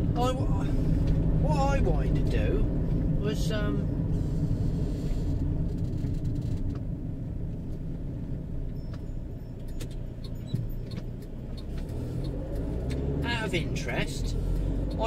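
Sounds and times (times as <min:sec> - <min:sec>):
van engine and road noise: 0:00.0 - 0:15.0.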